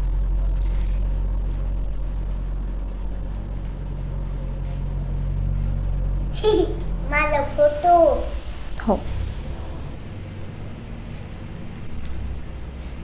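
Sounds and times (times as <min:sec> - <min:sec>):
steady low hum: 0:00.0 - 0:13.0
child's voice through phone speaker: 0:07.1 - 0:08.4.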